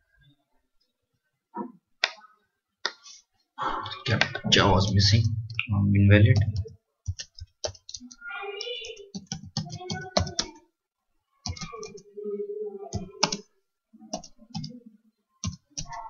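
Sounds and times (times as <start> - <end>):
computer keyboard typing: 6.4 - 10.6, 11.4 - 12.0, 12.9 - 13.5, 14.1 - 14.7, 15.4 - 16.0.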